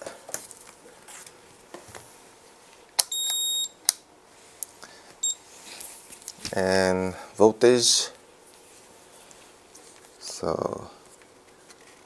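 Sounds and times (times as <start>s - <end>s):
multimeter beeping: 3.0s - 3.9s, 5.2s - 5.4s.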